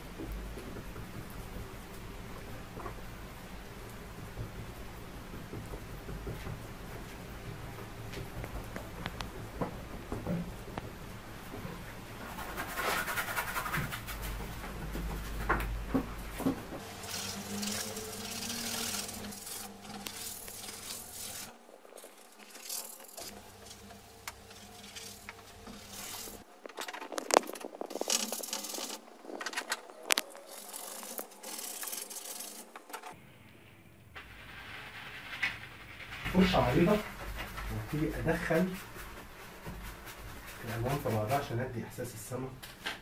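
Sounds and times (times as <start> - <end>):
paintbrush scrubbing on canvas: 12.2 - 14.5, 16.8 - 26.5, 30.3 - 32.8, 34.4 - 41.7.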